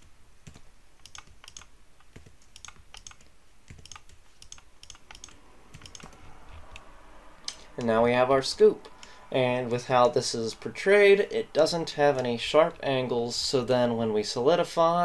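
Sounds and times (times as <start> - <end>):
mouse buttons clicking: 0.0 - 7.9
computer keyboard clicking: 0.4 - 6.8.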